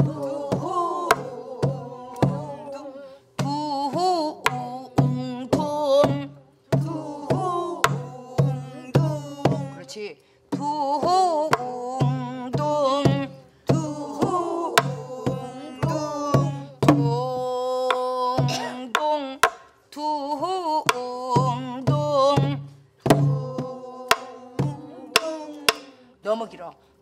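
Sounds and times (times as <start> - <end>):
deep barrel drum strokes: 0.0 - 2.7, 3.4 - 9.8, 21.4 - 25.8
woman singing with ornamented voice: 0.0 - 26.2.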